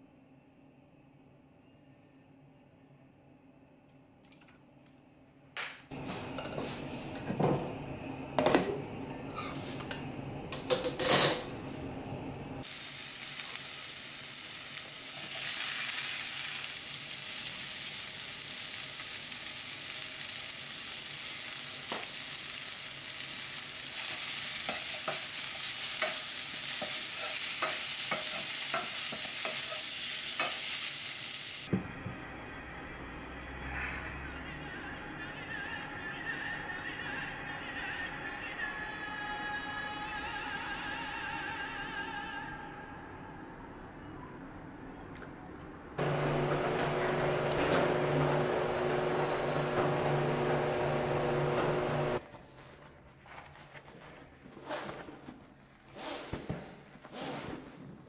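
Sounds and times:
vegetables sizzling in a skillet: 12.6 - 31.7.

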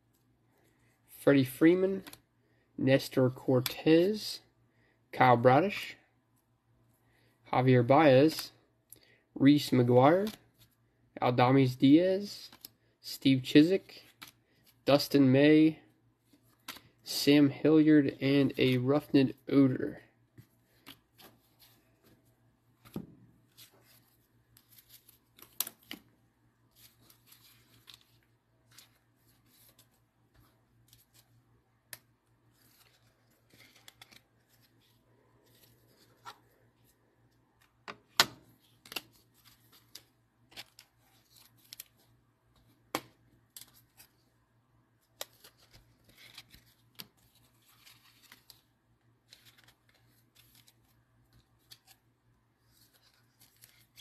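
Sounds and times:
trading cards being handled: 18.0 - 44.4, 45.0 - 54.0.

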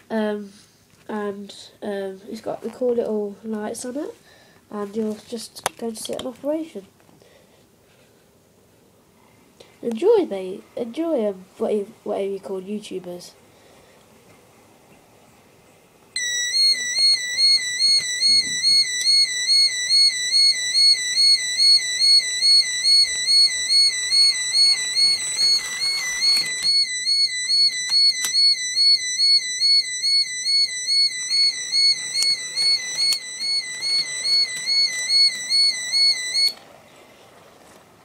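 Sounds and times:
warbling electronic warning alarm: 16.2 - 36.6.

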